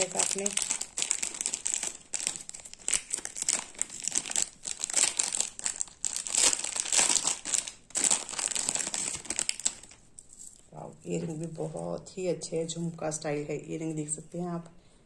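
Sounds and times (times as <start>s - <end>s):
plastic packet crinkling: 0.0s - 10.8s.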